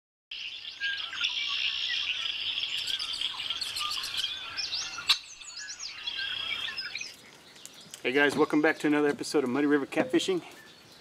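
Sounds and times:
birds chirping and singing: 0.3 - 11.0.

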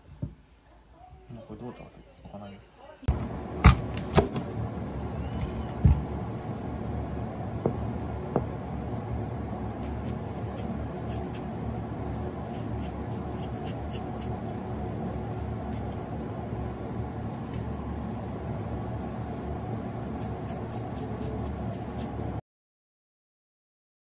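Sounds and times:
steady low hum: 3.1 - 22.4
apple wedge being peeled: 9.8 - 16.0, 19.6 - 22.3.

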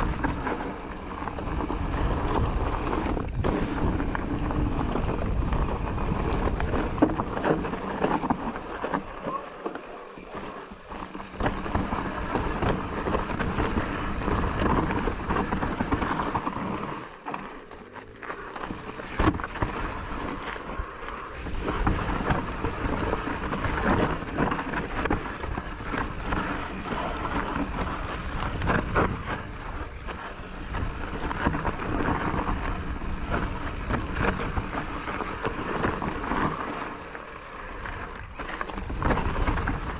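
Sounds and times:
wind rushing over microphone: 0.0 - 9.4
tyres rolling over rocks: 0.0 - 39.9.

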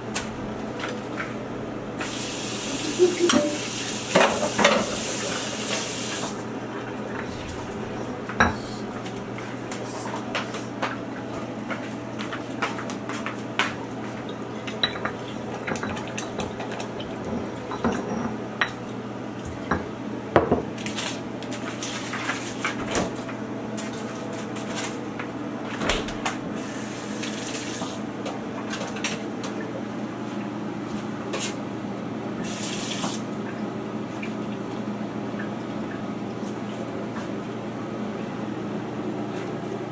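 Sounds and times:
running tap water: 1.9 - 9.5, 26.5 - 28.1, 32.4 - 34.8
steady low hum: 6.4 - 11.6
dishes clinking against mortar: 14.6 - 18.8.

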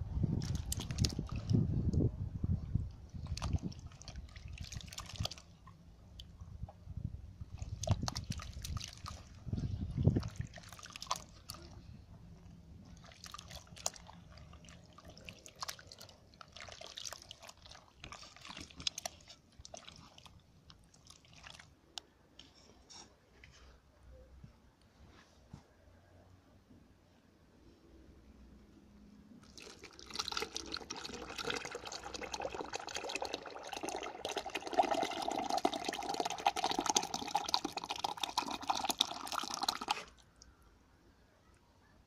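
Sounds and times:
wet splashes and drips: 0.3 - 1.7, 3.1 - 6.4, 7.5 - 11.9, 12.9 - 22.0, 29.4 - 40.6
hand sloshing through clay slurry: 0.4 - 1.7, 3.0 - 6.4, 7.4 - 12.0, 12.8 - 22.4, 29.4 - 40.4.

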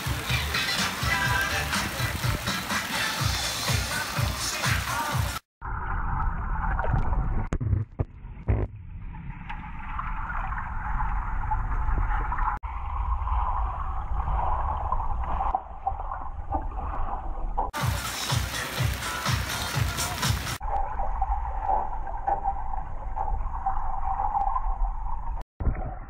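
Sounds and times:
underwater low rumble: 5.6 - 17.8, 20.6 - 26.0
hiss of moving water: 17.8 - 20.6.

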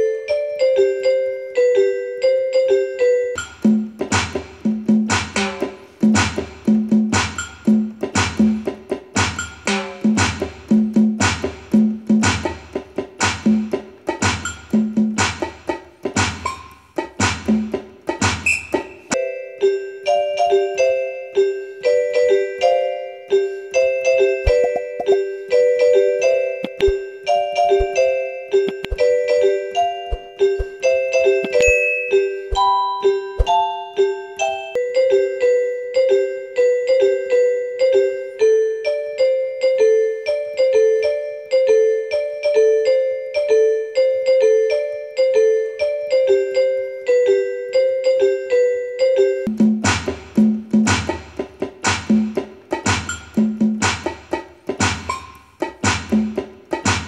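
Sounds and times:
keyboard melody: 0.0 - 4.0, 19.1 - 49.6.

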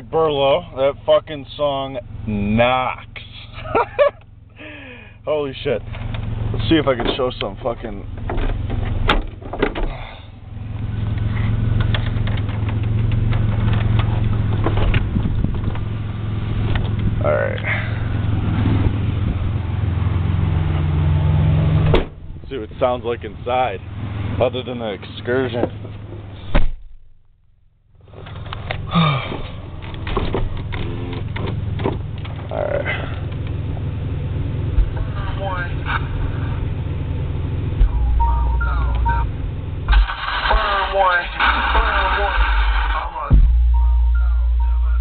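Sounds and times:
bass-heavy rap from car stereo: 6.4 - 8.7, 34.8 - 36.8, 37.6 - 45.0
deep bass note: 37.7 - 40.0, 41.8 - 45.0
rap music with heavy bass: 39.9 - 45.0.

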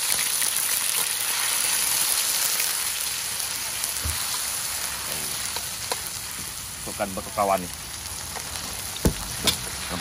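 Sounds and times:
paste sizzling in hot oil: 0.0 - 10.0.

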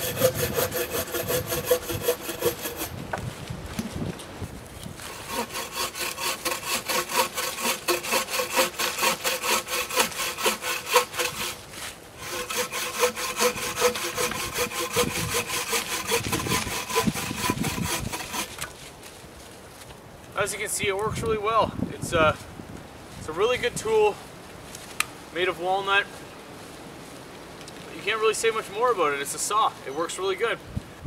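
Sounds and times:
hand saw cutting wood: 0.0 - 3.0, 5.0 - 18.8.

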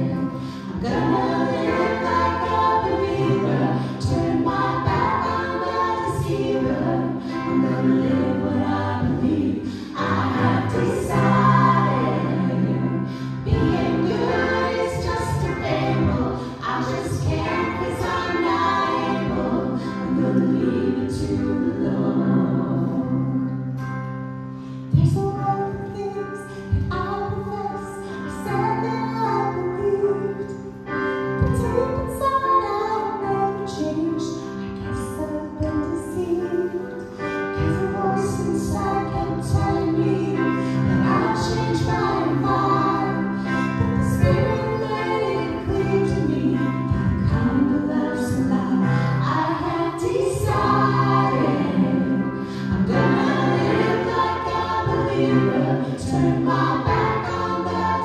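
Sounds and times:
group singing worship song: 0.0 - 24.0, 34.2 - 58.0
sustained accompaniment: 48.9 - 58.0.

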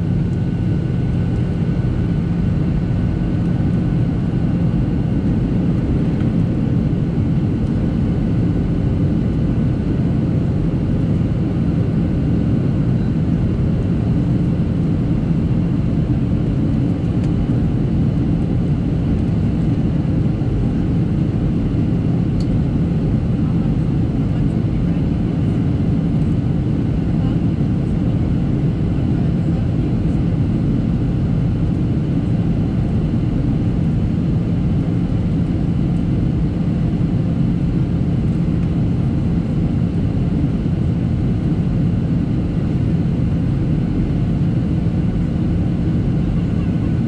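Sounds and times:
jet engine rumble: 0.0 - 47.0.

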